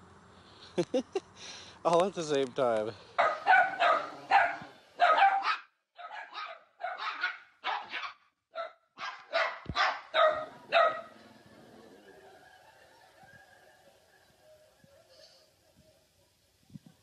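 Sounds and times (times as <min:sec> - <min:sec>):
puppies barking: 0:03.1 - 0:13.2.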